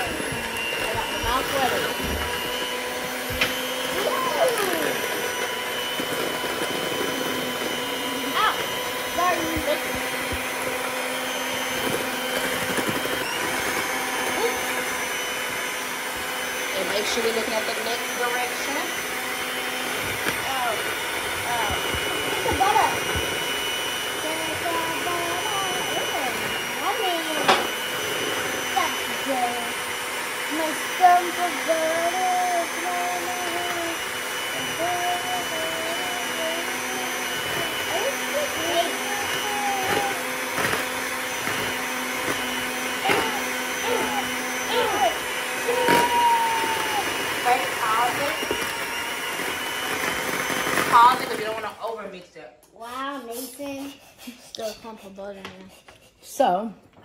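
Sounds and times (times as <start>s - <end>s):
electric hand mixer running: 0.0s - 55.4s
child's voice: 4.0s - 5.0s, 8.1s - 9.8s, 24.2s - 27.6s, 28.7s - 29.8s, 30.5s - 40.5s, 43.0s - 48.0s, 52.7s - 55.9s.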